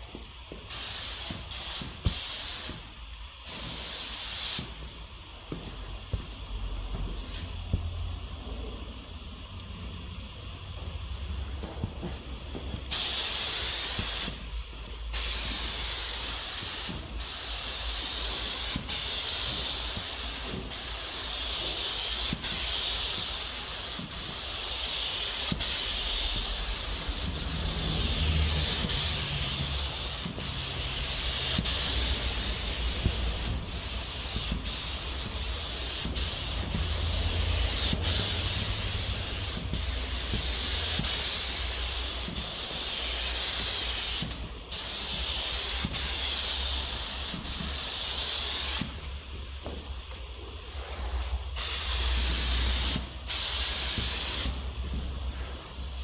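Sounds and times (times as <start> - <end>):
paint spray gun hissing: 0.6 - 5.0, 12.9 - 14.5, 15.1 - 49.1, 51.6 - 54.7.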